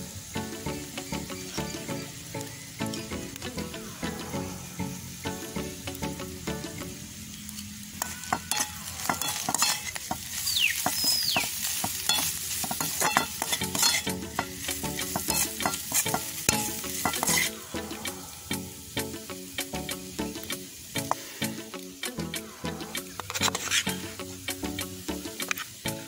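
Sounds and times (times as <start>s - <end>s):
fish sizzling in wok: 0.0s - 26.0s
spatula scraping metal wok: 7.5s - 18.2s, 22.6s - 24.5s.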